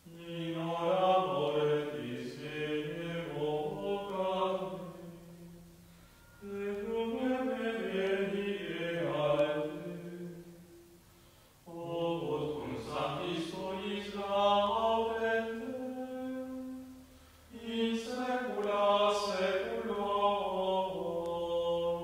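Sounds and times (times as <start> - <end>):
liturgical chant sung slowly: 0.0 - 22.0.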